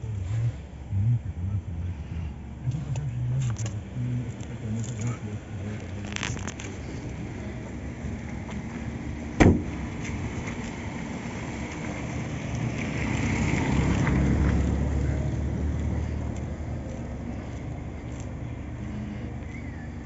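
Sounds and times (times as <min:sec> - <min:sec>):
low vehicle rumble: 0:00.0 - 0:20.0
car door shutting: 0:09.4 - 0:10.2.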